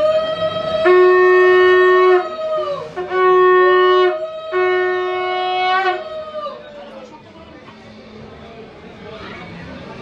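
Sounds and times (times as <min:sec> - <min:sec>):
low conch shell blasts: 0:00.0 - 0:06.3
high conch shell blowing: 0:00.0 - 0:06.6.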